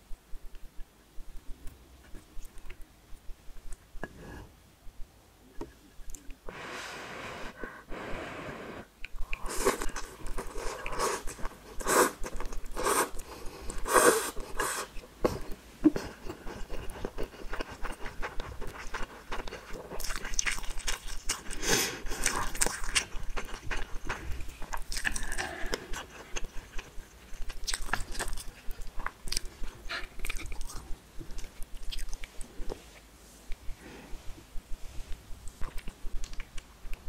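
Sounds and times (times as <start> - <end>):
chewing: 15.3 - 32.8, 35.0 - 37.0.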